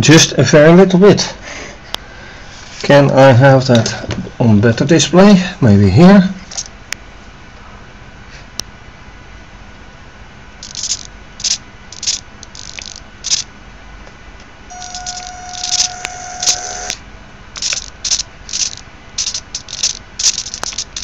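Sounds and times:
small servo motor whirring: 10.6s - 13.4s, 14.7s - 17.0s, 17.6s - 21.0s.

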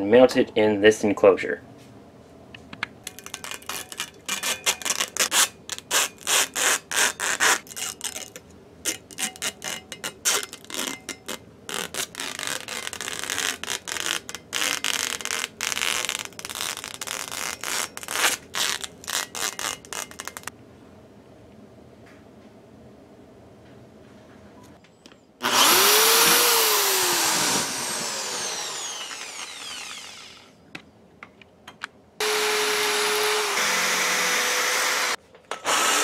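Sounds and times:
plastic film crinkling: 3.0s - 20.5s.

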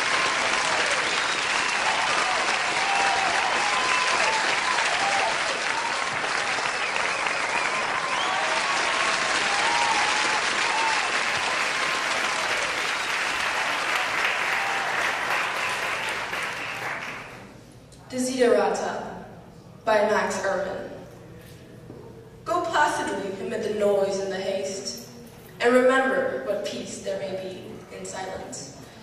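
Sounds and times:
audience applauding: 0.0s - 17.5s.

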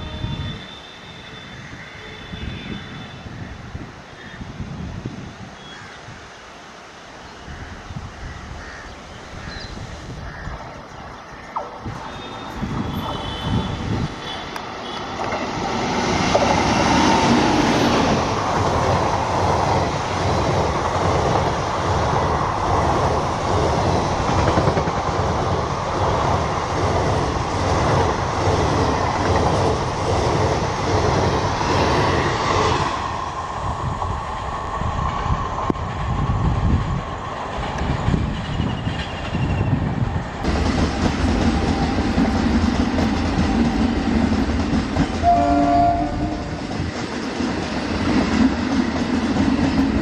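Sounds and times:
train passing at speed: 0.0s - 50.0s.

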